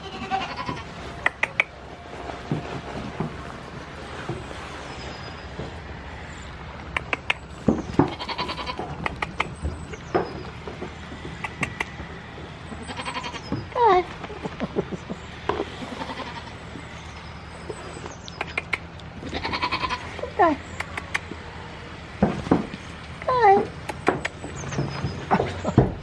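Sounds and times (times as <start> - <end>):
goat bleating: 0.0 - 1.0, 8.1 - 9.0, 12.8 - 14.8, 15.5 - 17.3, 19.2 - 20.4.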